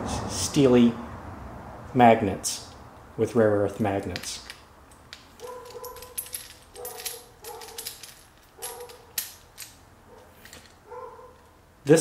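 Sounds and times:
metal parts clicking in hands: 0:04.0 - 0:10.8.

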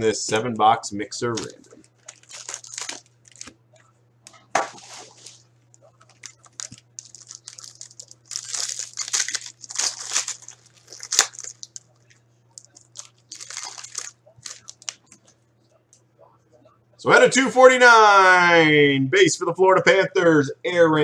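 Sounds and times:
foil wrapper crackling: 0:01.3 - 0:03.6, 0:04.8 - 0:15.2.

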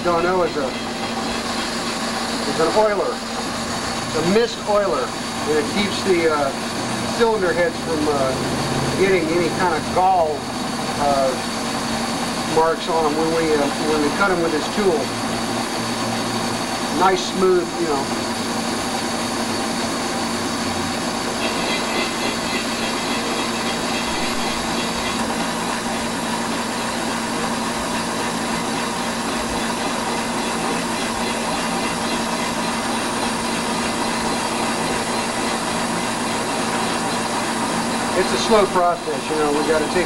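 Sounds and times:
high-pitched whine: 0:00.0 - 0:11.4, 0:19.4 - 0:27.8
valve seat machine cutting: 0:00.0 - 0:40.0.

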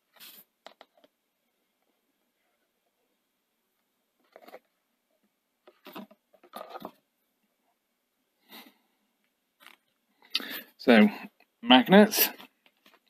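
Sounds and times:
rustles and clicks of handling: 0:05.6 - 0:07.0, 0:09.2 - 0:10.0, 0:12.4 - 0:13.0.

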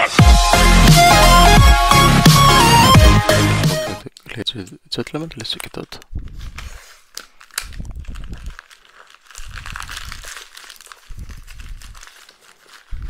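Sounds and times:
plastic wrap crinkling: 0:05.0 - 0:13.0.

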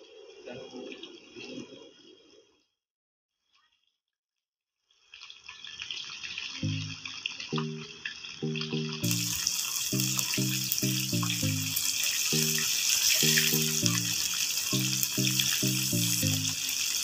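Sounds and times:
background music: 0:06.6 - 0:17.0
fish deep-frying in oil: 0:09.1 - 0:17.0.

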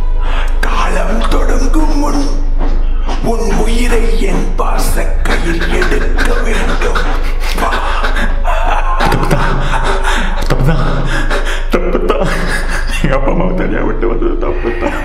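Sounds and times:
man sobbing: 0:05.1 - 0:15.0.

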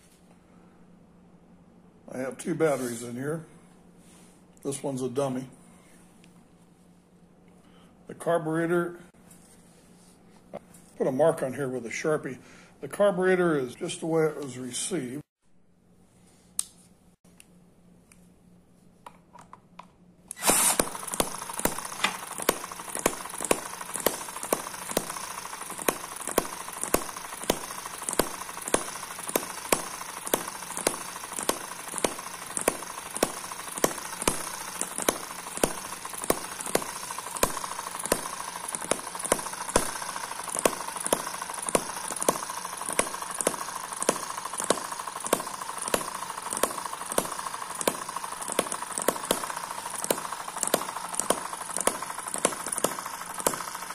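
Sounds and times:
cordless drill spinning: 0:20.3 - 0:53.9
model engine firing pops: 0:20.3 - 0:53.9
whir of gears: 0:20.3 - 0:53.9.

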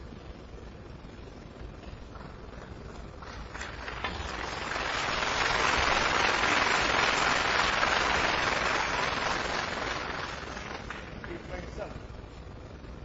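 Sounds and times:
audience applause: 0:03.2 - 0:11.2.

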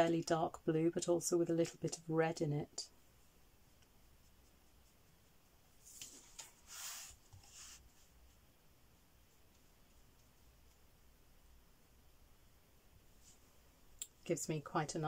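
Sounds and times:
paintbrush scrubbing strokes: 0:03.0 - 0:10.8.

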